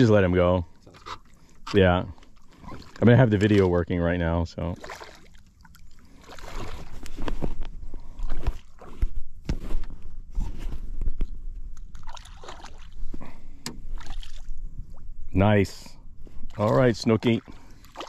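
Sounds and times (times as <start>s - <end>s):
water splashing and sloshing: 0.0s - 15.4s, 16.1s - 18.0s.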